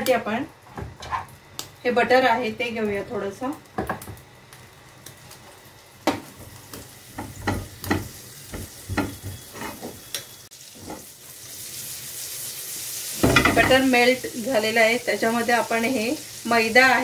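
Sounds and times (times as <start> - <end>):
butter sizzling: 0.0 - 17.0
ladle scraping frying pan: 9.0 - 10.0.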